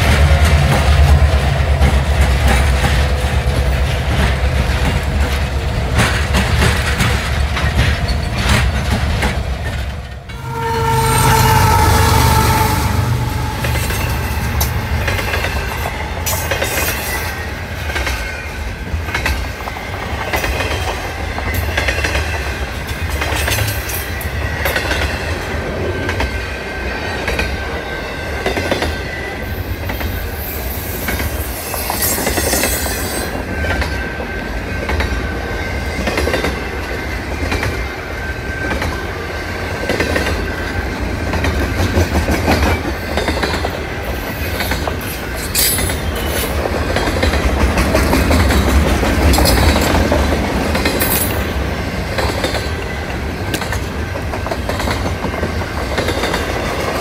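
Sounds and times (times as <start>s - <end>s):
clacking train wheels: 0.0s - 57.0s
freight train rumble: 0.0s - 57.0s
train horn: 10.2s - 17.6s.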